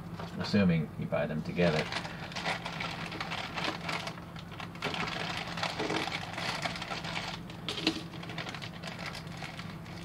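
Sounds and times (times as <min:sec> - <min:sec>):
plastic bag crinkling: 0:01.6 - 0:10.0.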